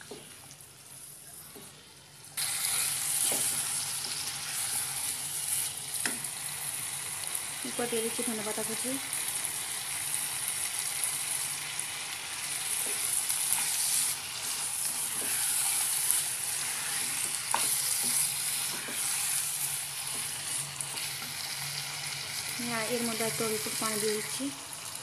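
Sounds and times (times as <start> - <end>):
food sizzling in a pan: 0.0 - 25.0
spatula scraping a pan: 2.4 - 6.0, 12.7 - 21.9.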